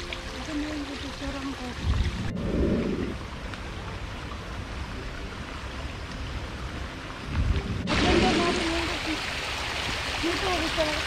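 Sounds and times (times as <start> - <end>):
rainwater rushing: 0.0 - 11.0
low rumble: 1.8 - 3.5.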